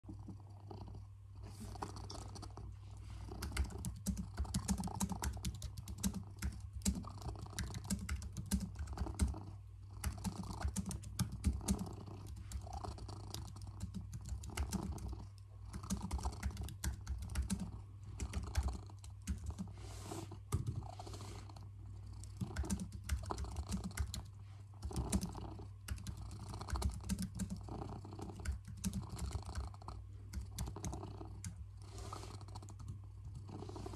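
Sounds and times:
cat purring: 0.0 - 33.9
typing on computer keyboard: 3.4 - 9.3, 10.0 - 12.7, 13.3 - 15.1, 15.7 - 19.7, 22.3 - 27.6, 28.2 - 29.6, 30.3 - 31.6.

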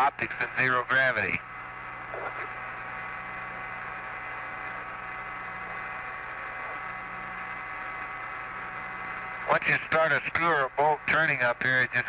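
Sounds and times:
faint steady tones: 0.0 - 12.0
radio channel hiss: 0.0 - 12.0
low hum: 1.4 - 9.6.

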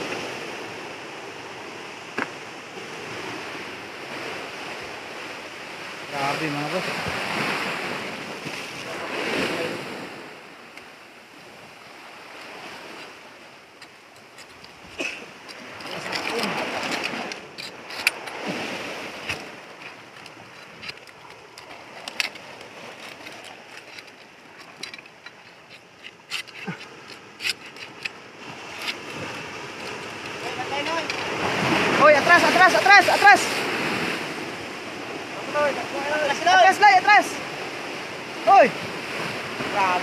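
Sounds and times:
ocean surf washing against rocks: 0.0 - 40.0
knife blade scraping rock: 14.2 - 18.4, 21.9 - 30.4.

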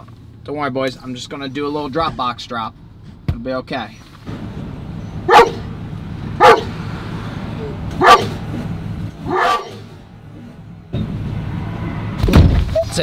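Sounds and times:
puppy barking: 5.2 - 5.7, 6.4 - 6.8, 8.0 - 8.4, 9.2 - 9.9.

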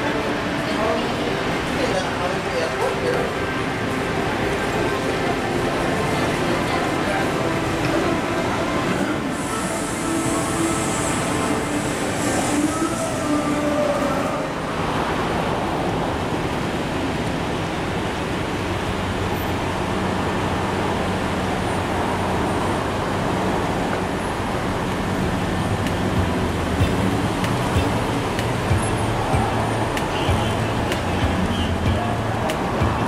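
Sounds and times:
cars and bus idling and passing: 0.0 - 33.0
low engine hum: 17.3 - 33.0.

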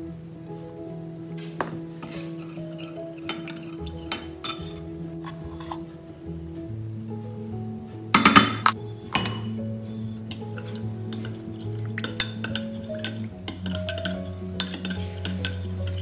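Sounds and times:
background music: 0.0 - 16.0
metal spoon clinking against glass jug: 2.5 - 4.8, 8.2 - 9.6, 10.3 - 16.0.

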